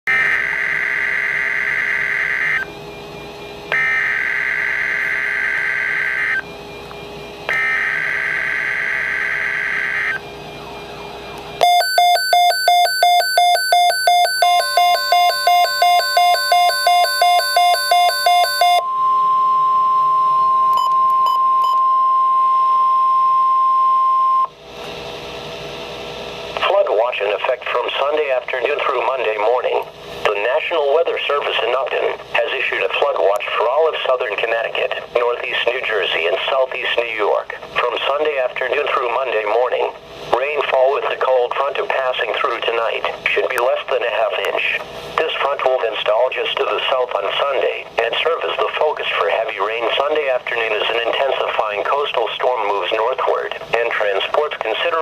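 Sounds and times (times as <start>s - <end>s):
radio alarm beeping: 0.1s - 2.7s, 3.7s - 6.5s, 7.4s - 24.5s
screechy digital data bursts: 11.6s - 18.8s
steady alert tone: 11.6s - 21.4s.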